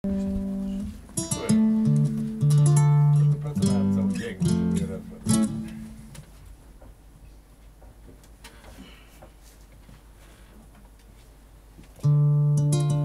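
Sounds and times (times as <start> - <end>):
nylon-string guitar chords: 0.0 - 6.2, 12.0 - 13.0.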